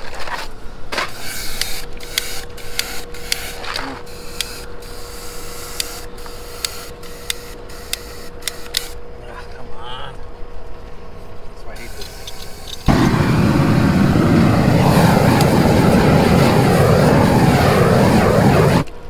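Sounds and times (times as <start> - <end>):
roofing torch hissing: 11.8 - 18.9
sharp crackles: 12.7 - 19.0.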